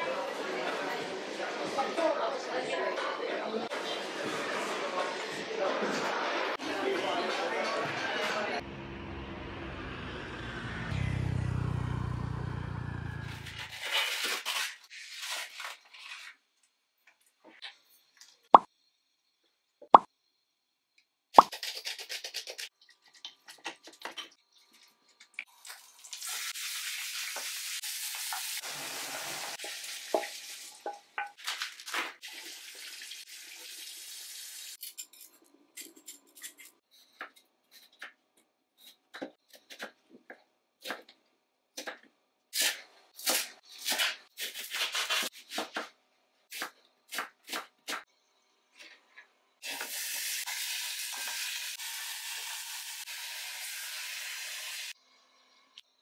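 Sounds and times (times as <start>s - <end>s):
food sizzling in a pan: 25.5s - 31.2s, 32.2s - 34.8s, 49.6s - 55.0s.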